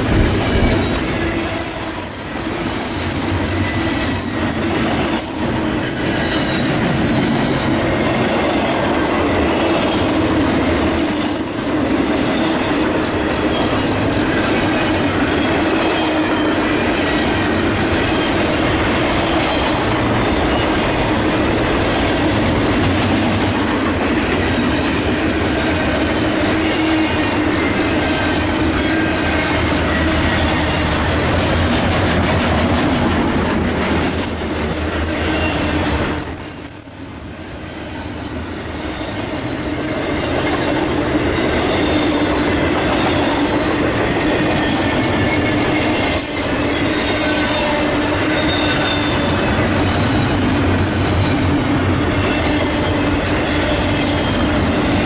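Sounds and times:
train wheels rumbling on rail: 0.0 - 55.0
high wavering wheel squeals: 44.5 - 50.4, 51.1 - 54.5.

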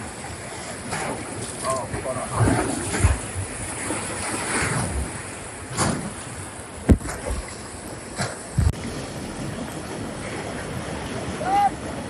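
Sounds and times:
sharp knocks and splashes: 0.9 - 9.0
whitewater river rushing: 6.6 - 12.0.

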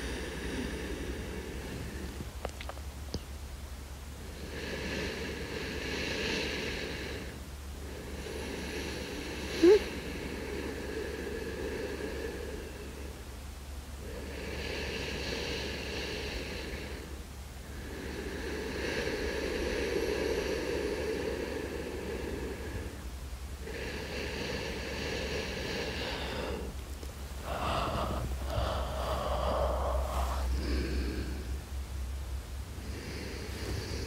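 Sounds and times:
person breathing in sleep: 0.0 - 2.3, 4.2 - 13.3, 14.0 - 34.0.

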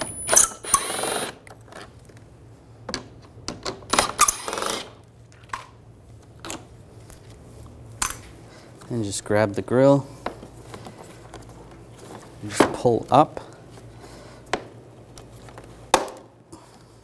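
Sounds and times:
cordless power driver running: 0.2 - 1.4.

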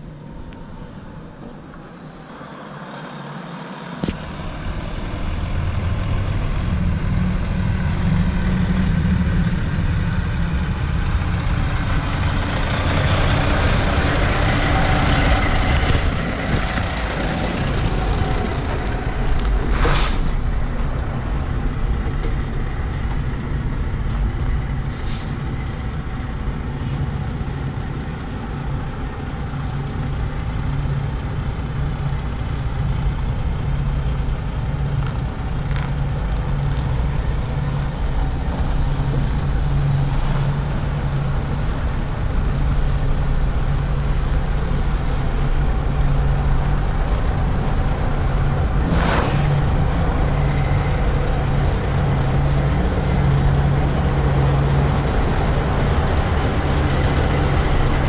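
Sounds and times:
air brakes hissing: 0.6 - 5.2, 19.7 - 20.4, 24.8 - 25.6
truck diesel engine running: 2.6 - 58.0.

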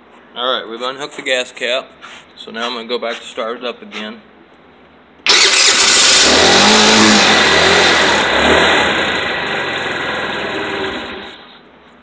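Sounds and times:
scooter engine running and revving: 5.3 - 11.3.

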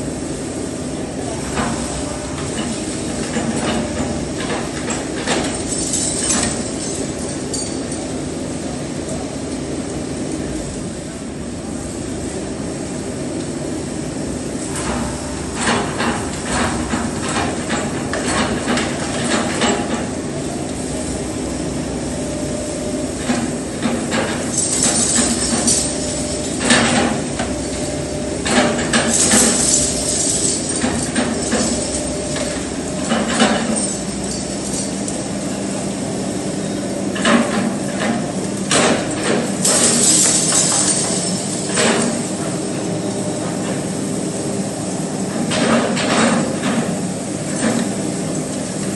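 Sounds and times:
excavator diesel engine: 13.9 - 40.9.

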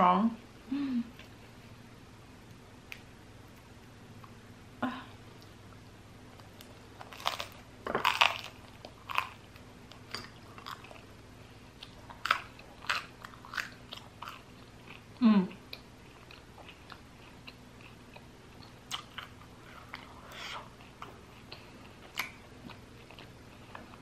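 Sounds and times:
chewing: 6.4 - 11.1, 11.8 - 15.0, 15.7 - 24.0
crunching crusty bread: 6.6 - 11.0.

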